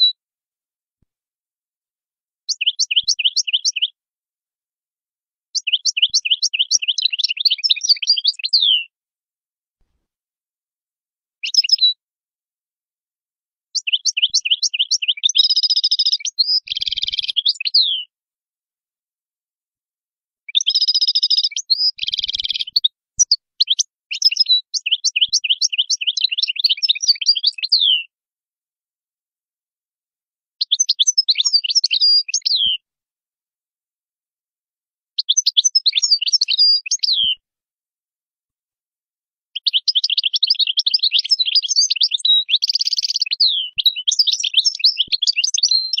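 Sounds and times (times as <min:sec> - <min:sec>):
goldfinch twittering song: 0:02.5 - 0:04.0, 0:05.6 - 0:08.9, 0:11.4 - 0:12.0, 0:13.8 - 0:18.1, 0:20.5 - 0:28.1, 0:30.6 - 0:32.8, 0:35.2 - 0:37.4, 0:39.6 - 0:46.0.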